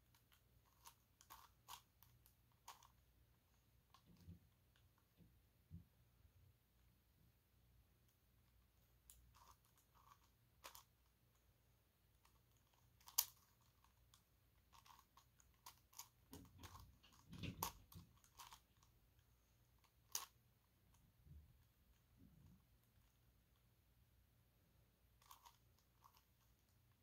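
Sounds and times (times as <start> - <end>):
plastic puzzle clicking: 0.1 - 3.0, 9.1 - 10.9, 12.2 - 18.9, 19.8 - 20.4, 25.2 - 26.7.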